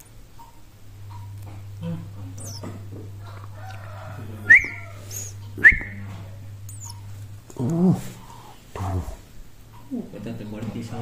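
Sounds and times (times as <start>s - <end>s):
nestling birds cheeping: 0.0s - 7.5s
steady low hum: 0.0s - 11.0s
rising whistle notes: 4.5s - 6.0s.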